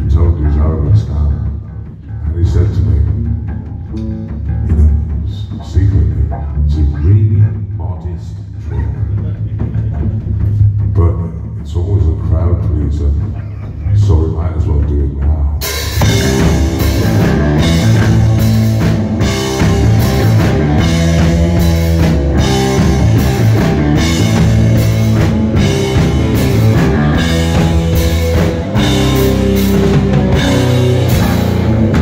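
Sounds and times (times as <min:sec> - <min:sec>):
drum kit beat: 0:00.0 - 0:32.0
loud electric guitars: 0:15.6 - 0:32.0.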